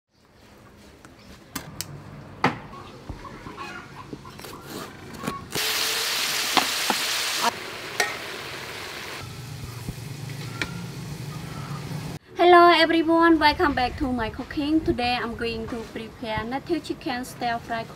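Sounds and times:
food sizzling in a wok: 0:05.6 - 0:12.2.

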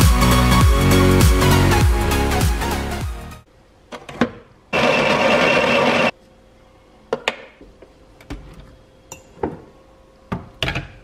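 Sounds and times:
coffee grinder grinding beans: 0:04.8 - 0:06.1.

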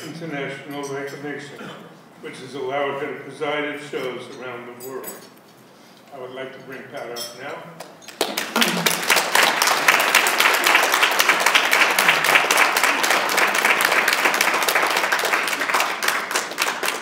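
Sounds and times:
audience applauding: 0:08.0 - 0:17.0.

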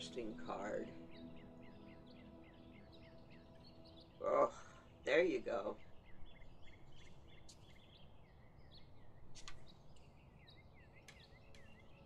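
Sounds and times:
low background hiss: 0:00.0 - 0:07.1
faint birdsong chirping: 0:00.0 - 0:12.0.

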